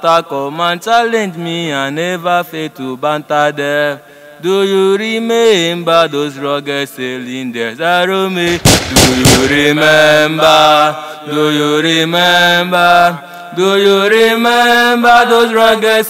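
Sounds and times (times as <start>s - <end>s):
person chanting: 0.0s - 16.0s
sharp cracks: 8.4s - 10.0s.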